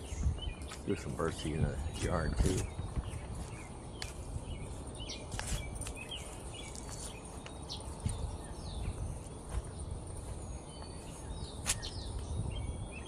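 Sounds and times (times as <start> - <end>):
small birds chirping: 0.0 - 13.0.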